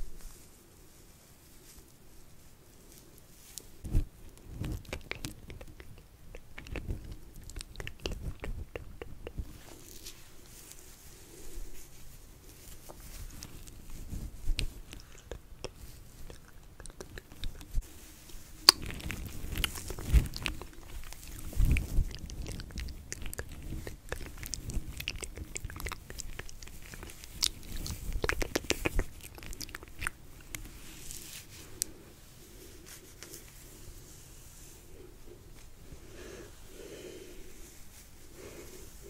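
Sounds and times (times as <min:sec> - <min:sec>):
wet mouth clicks: 0:04.6 - 0:09.7, 0:14.5 - 0:30.7.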